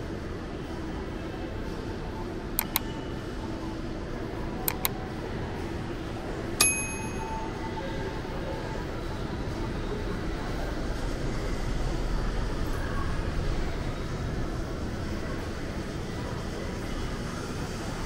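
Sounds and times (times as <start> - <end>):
mall interior hum: 0.0 - 18.0
mouse clicks: 2.6 - 2.9, 4.7 - 4.9
bell ding: 6.6 - 7.5.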